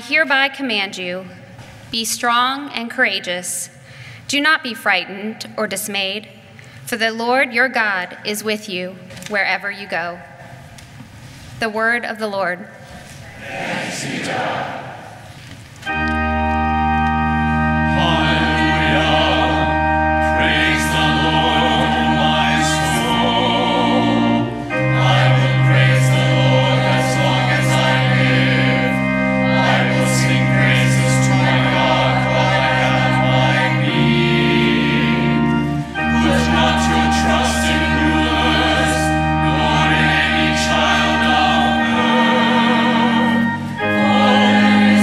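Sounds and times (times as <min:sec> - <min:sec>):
choir singing: 0:13.2 - 0:15.3, 0:15.9 - 0:45.0
organ chords: 0:13.4 - 0:45.0.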